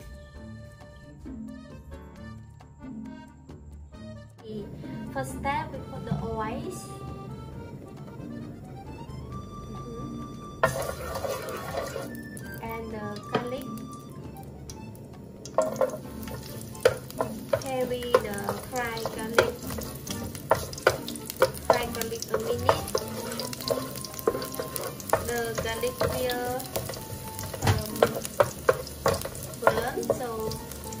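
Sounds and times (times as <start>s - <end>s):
garlic sizzling in hot oil: 10.0s - 31.0s
spatula tapping and scraping pan: 10.6s - 12.2s, 13.2s - 13.7s, 15.5s - 31.0s.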